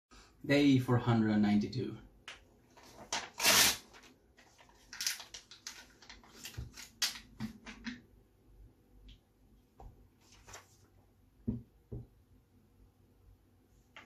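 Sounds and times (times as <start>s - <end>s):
paper tearing with teeth: 3.2s - 4.0s.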